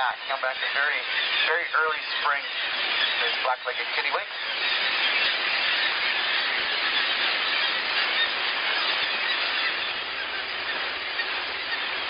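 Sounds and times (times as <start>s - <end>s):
colony of seabirds calling: 0.0s - 12.0s.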